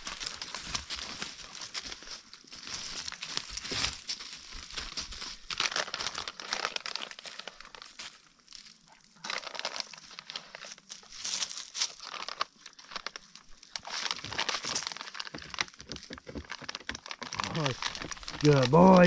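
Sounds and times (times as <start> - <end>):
footsteps crunching through dry litter: 0.0 - 19.0.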